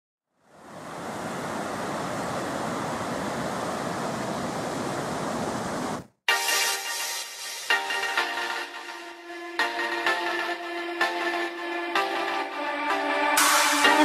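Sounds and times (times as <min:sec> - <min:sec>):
ocean surf breaking: 0:00.6 - 0:06.1.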